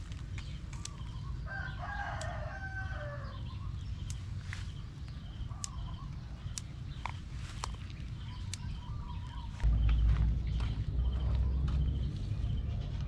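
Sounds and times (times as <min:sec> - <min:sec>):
plant stems snapping and rustling: 0:00.0 - 0:01.2, 0:04.0 - 0:09.7
rooster crowing: 0:01.5 - 0:03.4.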